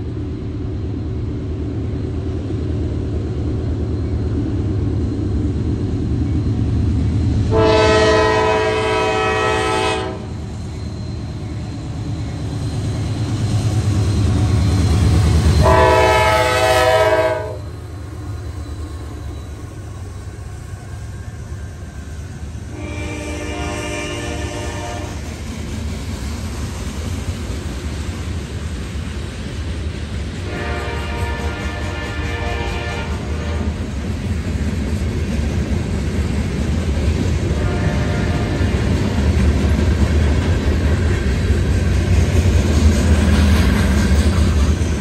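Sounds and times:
locomotive engine rumble: 0:00.1 - 0:45.0
locomotive air horn blasts: 0:07.5 - 0:10.4, 0:15.6 - 0:17.7, 0:22.7 - 0:25.2, 0:30.4 - 0:33.8, 0:37.6 - 0:38.6.

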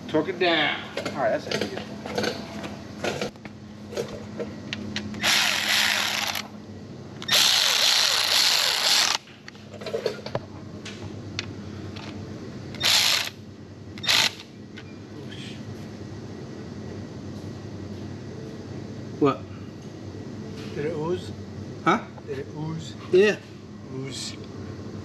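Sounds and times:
power tool running in bursts: 0:05.2 - 0:06.5, 0:07.2 - 0:09.2, 0:12.8 - 0:13.4, 0:14.0 - 0:14.4.

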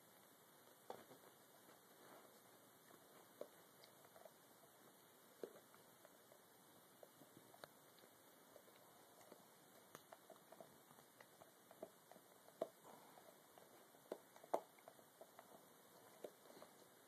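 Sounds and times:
dog chewing claws: 0:07.0 - 0:17.0.

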